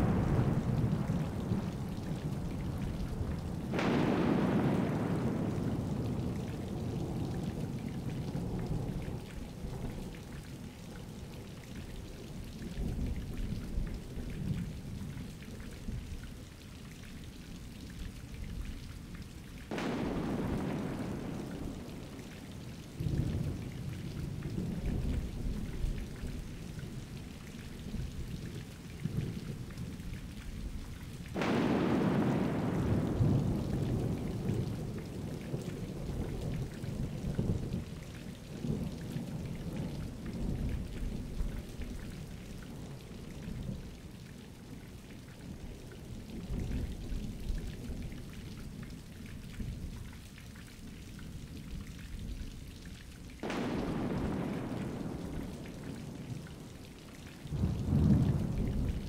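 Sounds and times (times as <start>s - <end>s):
thunder rumbling: 0.0s - 10.5s, 19.7s - 26.6s, 31.3s - 42.2s, 53.4s - 59.0s
steady rain: 0.0s - 59.0s
sharp thunderclap: 3.6s - 6.4s, 19.7s - 22.2s, 31.3s - 34.5s, 53.4s - 56.4s.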